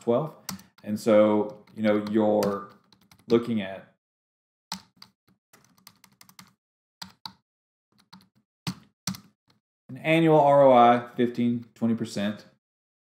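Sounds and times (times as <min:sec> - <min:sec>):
keyboard keys clicking: 0:01.5 - 0:03.4, 0:04.7 - 0:07.4.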